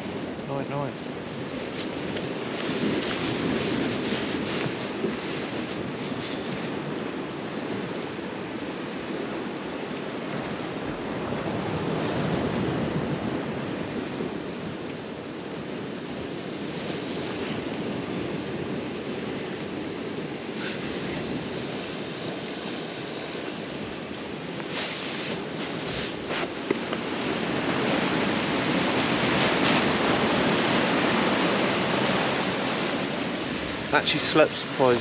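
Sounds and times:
sea washing against rocky shore: 0:00.0 - 0:35.0
wind: 0:00.0 - 0:35.0
sleeping bag rustling: 0:24.6 - 0:26.6.

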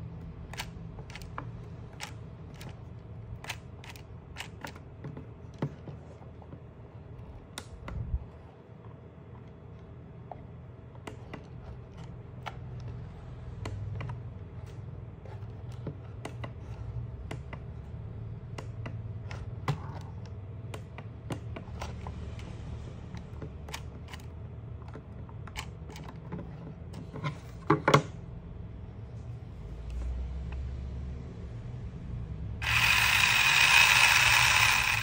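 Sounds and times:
small electric motor humming: 0:32.6 - 0:35.0.

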